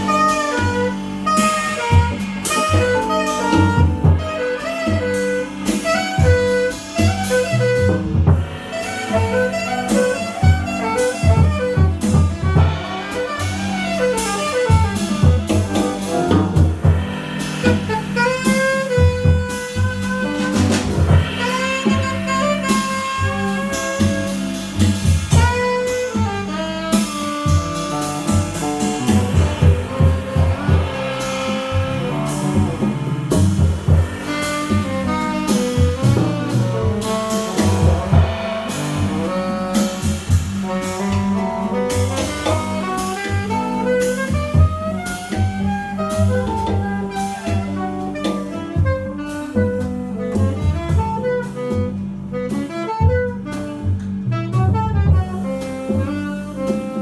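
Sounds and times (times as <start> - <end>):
drum kit with cymbals: 0.0 - 57.0
saxophone melody: 0.0 - 57.0
upright double bass: 0.0 - 57.0
guitar: 37.8 - 39.6.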